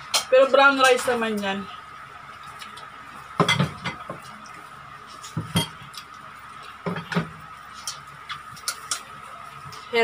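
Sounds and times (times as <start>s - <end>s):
tableware clinking: 5.4s - 5.8s.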